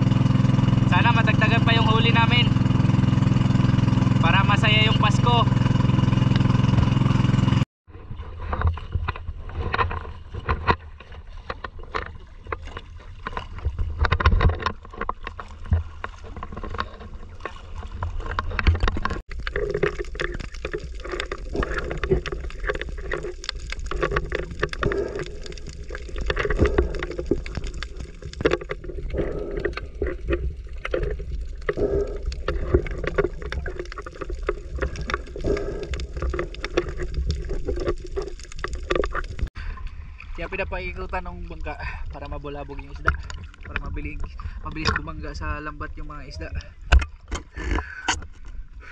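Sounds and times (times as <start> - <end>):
water splashing around boat: 0.0 - 48.9
low rumble: 15.5 - 46.8.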